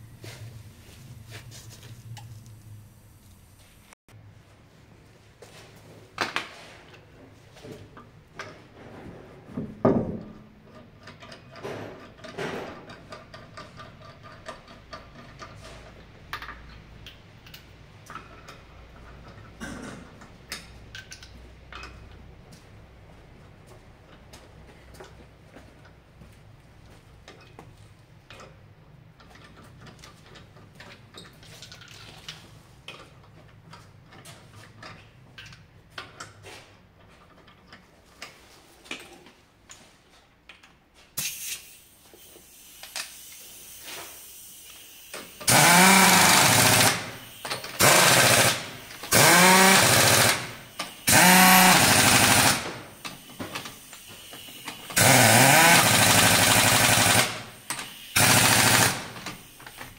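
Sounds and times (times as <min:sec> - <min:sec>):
impact wrench bursts: 0:41.2 - 0:59.9.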